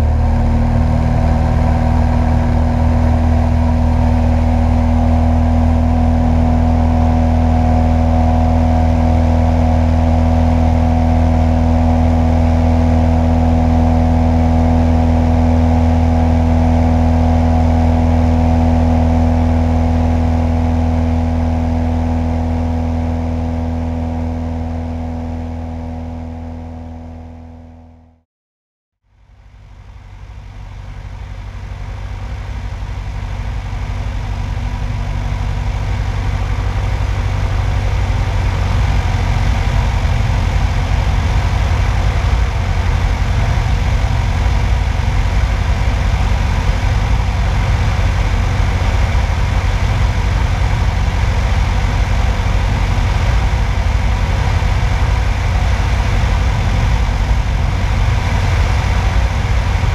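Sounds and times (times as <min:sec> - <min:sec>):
light airplane engine and propeller: 0:00.0 - 0:28.2, 0:29.1 - 0:59.9
rushing airflow: 0:32.0 - 0:59.9.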